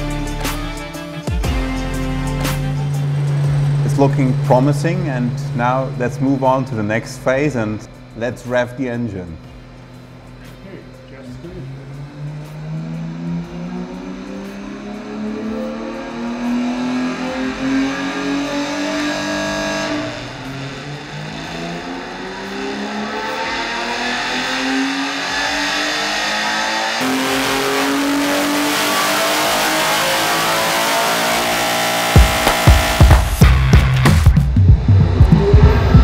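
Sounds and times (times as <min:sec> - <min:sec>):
engine revving: 0:00.0 - 0:36.0.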